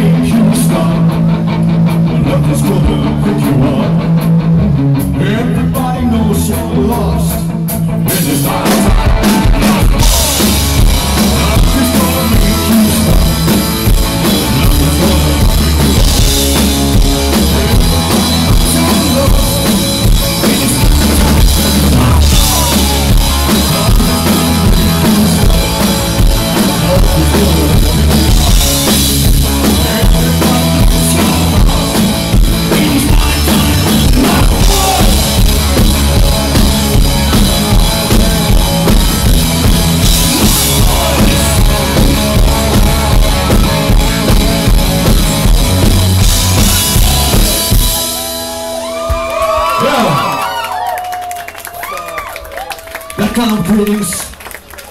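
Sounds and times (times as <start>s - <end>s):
bass guitar: 0.0s - 54.9s
electric guitars: 0.0s - 54.9s
person singing: 2.0s - 4.1s, 8.1s - 48.2s
drum kit with cymbals: 8.2s - 48.8s.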